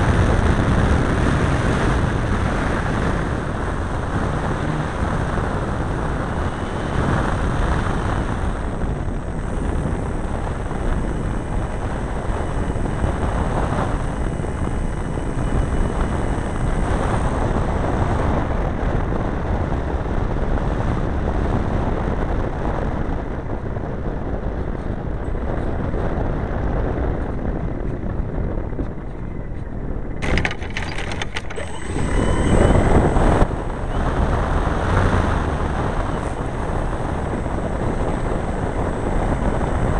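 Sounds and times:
model airplane engine and propeller: 0.0s - 39.9s
wind rushing over microphone: 0.0s - 39.9s
clicks and knocks on dirt: 30.2s - 31.6s.

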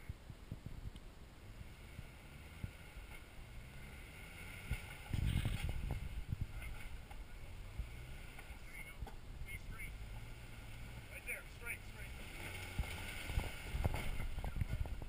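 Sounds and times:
wind buffeting microphone: 0.0s - 1.4s, 4.6s - 8.0s, 12.7s - 15.0s
low engine rumble: 0.0s - 15.0s.

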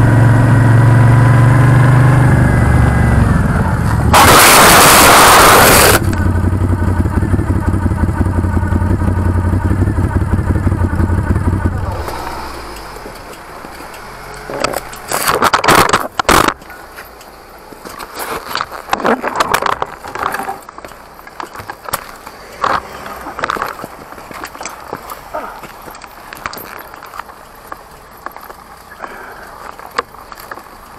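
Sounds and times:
motorcycle engine running: 0.0s - 18.1s, 19.0s - 30.9s
motorcycle crash impact: 3.8s - 6.3s, 14.5s - 16.6s
scrapes and clatters: 17.9s - 27.4s.

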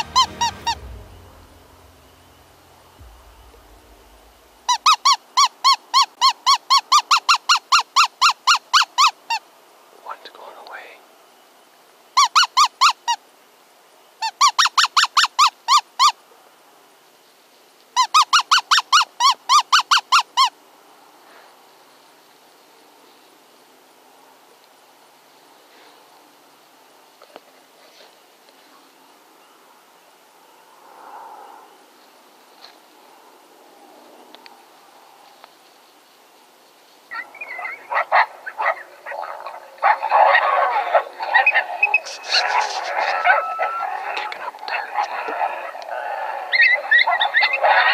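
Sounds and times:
coyotes yipping and howling: 37.1s - 47.9s.

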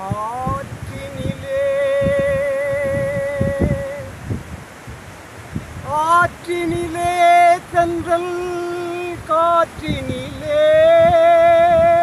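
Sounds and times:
man singing wordless melody: 0.0s - 4.3s, 5.8s - 12.0s.

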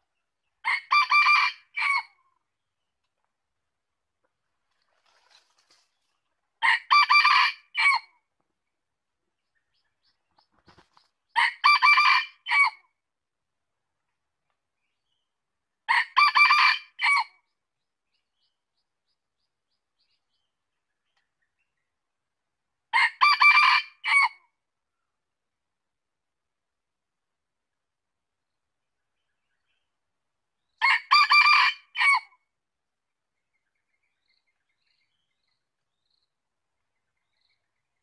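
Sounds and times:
rooster crowing: 0.7s - 2.0s, 6.6s - 8.0s, 11.4s - 12.8s, 16.0s - 17.3s, 23.0s - 24.4s, 30.8s - 32.3s.

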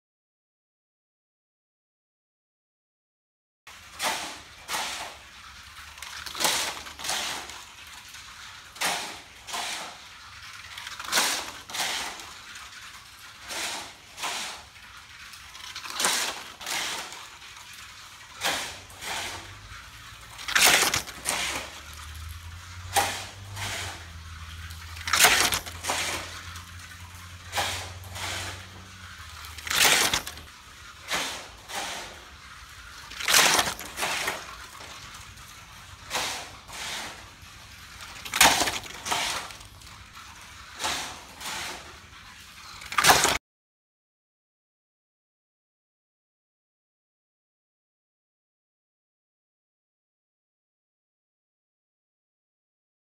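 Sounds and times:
toy car whooshing past: 3.7s - 43.4s.

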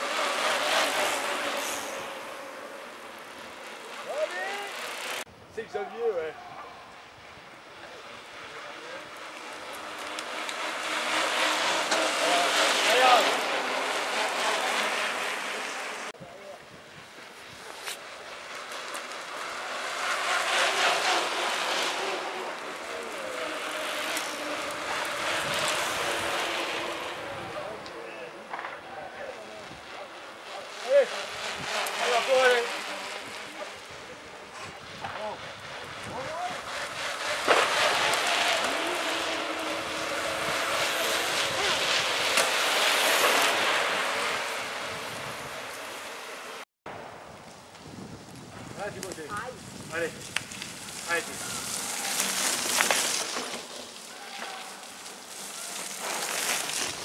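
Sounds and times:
bike tyres rushing on asphalt: 0.0s - 57.0s
wind on microphone: 24.5s - 27.8s, 33.2s - 43.3s, 44.2s - 45.8s, 46.9s - 52.2s.

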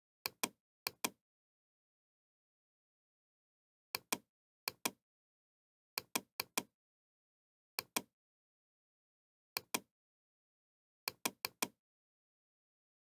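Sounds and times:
computer mouse clicking: 7.8s - 8.1s, 9.6s - 9.9s, 11.1s - 11.8s.

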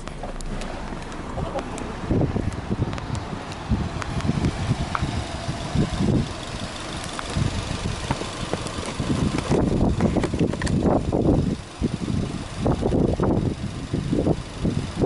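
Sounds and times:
car engine running: 0.0s - 15.0s.

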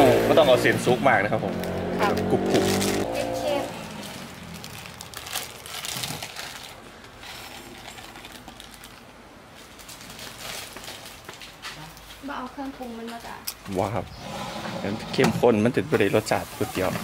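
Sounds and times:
plastic packet crinkling: 3.9s - 11.6s.

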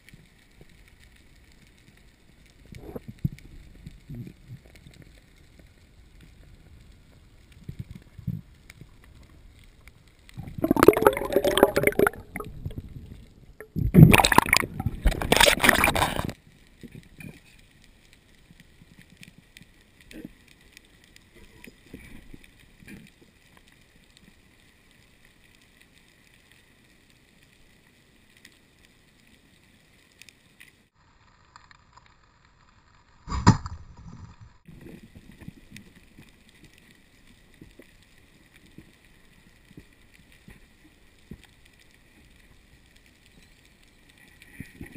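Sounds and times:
water sloshing: 10.4s - 12.8s, 13.6s - 16.4s
breath blasts through snorkel: 13.8s - 16.4s.

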